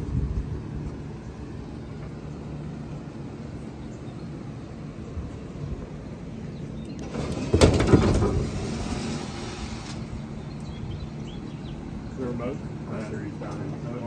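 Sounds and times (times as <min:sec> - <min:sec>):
low engine rumble: 0:00.0 - 0:14.0
rattling and scraping: 0:07.0 - 0:10.3.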